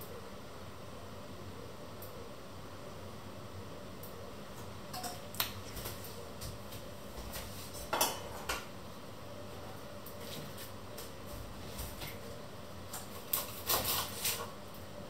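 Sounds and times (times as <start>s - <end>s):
utensils and dishes clinking: 4.9s - 5.3s, 7.7s - 8.6s.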